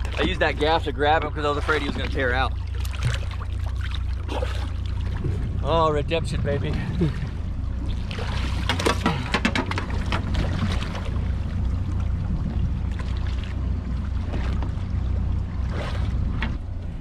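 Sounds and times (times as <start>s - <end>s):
fish splashing in water: 0.0s - 5.5s, 7.8s - 12.2s
steady low hum: 0.0s - 17.0s.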